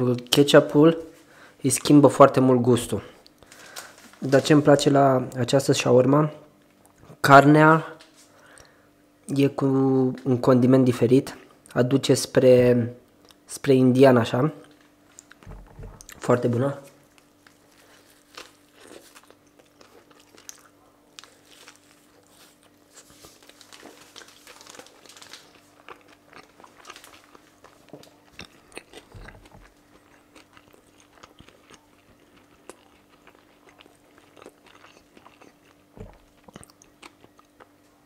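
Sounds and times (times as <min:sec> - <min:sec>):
faint steady hum: 0:00.0 - 0:38.0
chewing mouth sounds: 0:17.0 - 0:23.2, 0:25.6 - 0:37.8.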